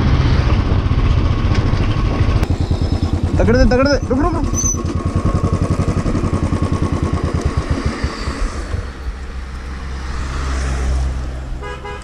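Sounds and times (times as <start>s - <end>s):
low rumble: 0.0s - 11.5s
motorcycle engine idling: 0.5s - 9.3s.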